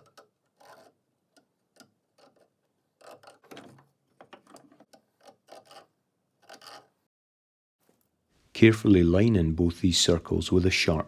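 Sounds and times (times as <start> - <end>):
steel point scratching wood: 0.0 - 7.1.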